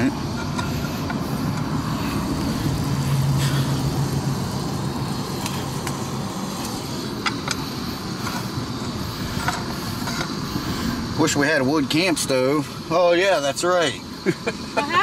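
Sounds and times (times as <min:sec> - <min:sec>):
camp stove hissing: 0:00.0 - 0:15.0
wind rushing over microphone: 0:00.1 - 0:06.5.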